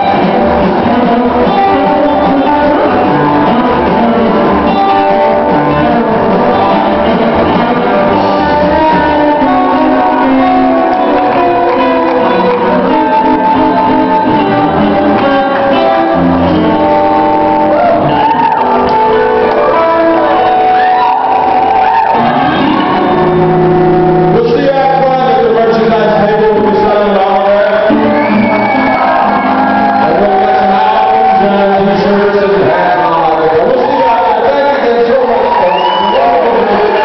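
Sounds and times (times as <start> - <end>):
pulsing bass line: 0.0 - 27.0
electric guitar lead bending notes: 0.0 - 37.0
live band music: 0.0 - 37.0
people shouting: 17.2 - 18.9, 20.4 - 23.4.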